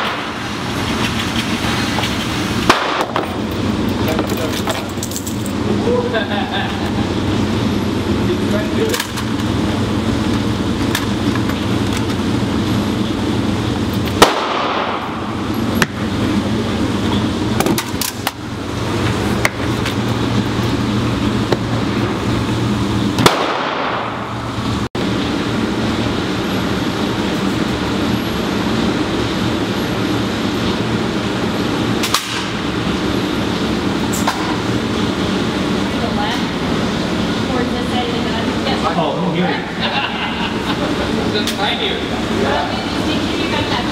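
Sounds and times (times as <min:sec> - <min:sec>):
sharp gunshots: 0:00.0 - 0:00.4, 0:02.6 - 0:03.3, 0:14.2 - 0:15.2, 0:23.2 - 0:24.3
low hum of shooting range: 0:00.0 - 0:43.9.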